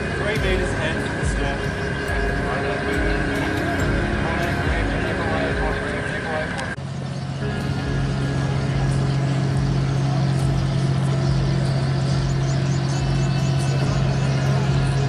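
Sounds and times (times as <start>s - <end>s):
ship engines humming: 0.0s - 15.0s.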